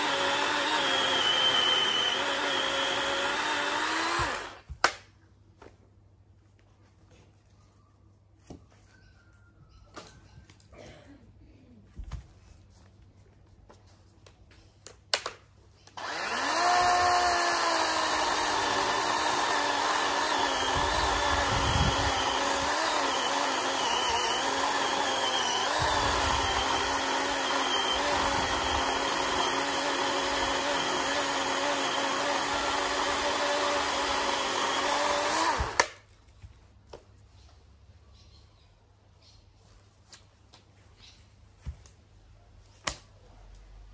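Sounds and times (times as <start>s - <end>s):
chainsaw cutting log: 0.0s - 5.0s, 15.9s - 36.0s.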